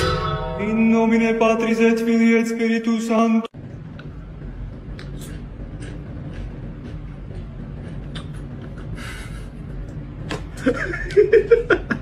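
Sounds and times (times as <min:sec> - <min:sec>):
steady low hum: 0:00.0 - 0:12.0
person chuckling: 0:08.2 - 0:09.9.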